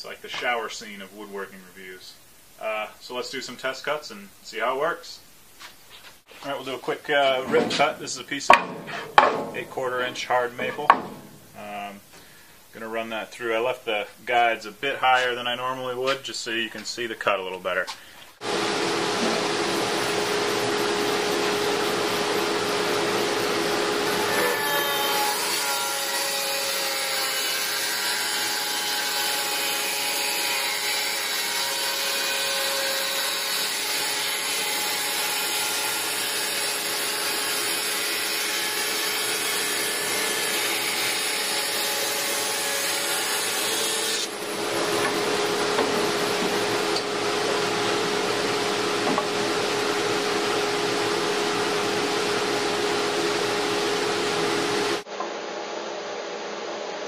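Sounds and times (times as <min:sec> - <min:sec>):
dust collector running: 0:18.4 - 0:24.2, 0:44.3 - 0:55.0
bandsaw cutting wood: 0:23.4 - 0:48.5.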